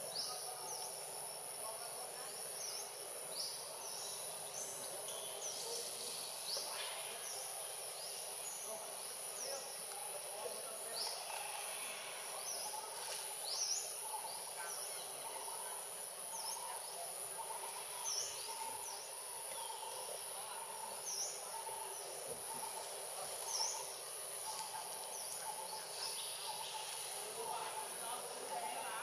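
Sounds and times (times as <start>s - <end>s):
high-pitched insect drone: 0.0s - 21.8s.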